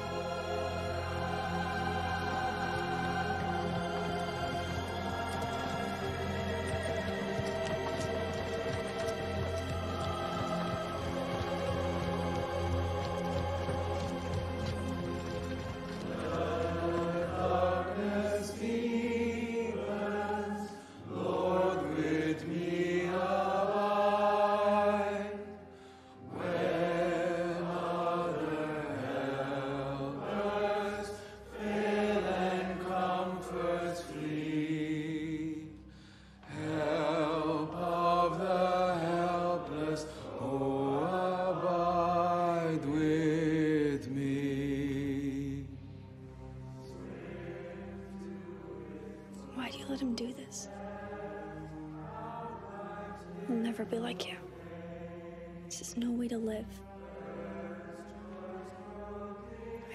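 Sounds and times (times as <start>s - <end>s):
slow choral singing: 0.0s - 59.9s.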